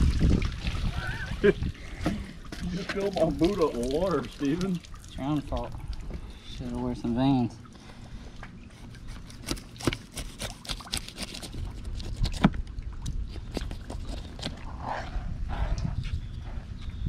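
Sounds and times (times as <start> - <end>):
knife crunching through fish scales: 8.9 - 12.6, 13.2 - 14.6
low rumble: 14.6 - 17.0.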